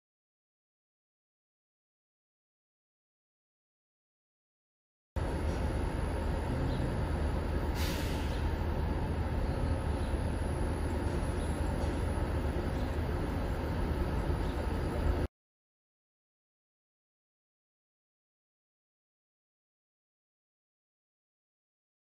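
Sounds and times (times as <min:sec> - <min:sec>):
engine rumble idling: 0:05.2 - 0:15.3
traffic noise: 0:05.2 - 0:15.3
air hiss burst: 0:07.7 - 0:08.4.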